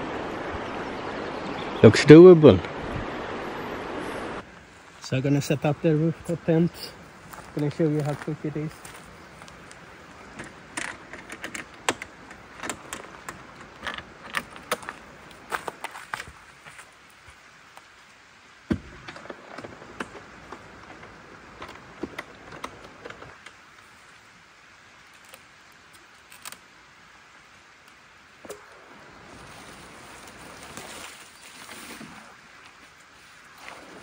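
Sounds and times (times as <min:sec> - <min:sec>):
rain hissing: 0:00.0 - 0:34.0
clicks and knocks of tent latches: 0:09.7 - 0:16.0, 0:18.7 - 0:23.6.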